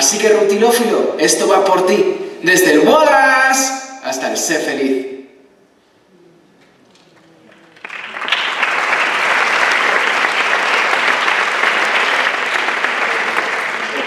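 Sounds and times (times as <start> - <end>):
audience applauding: 6.9 - 14.0.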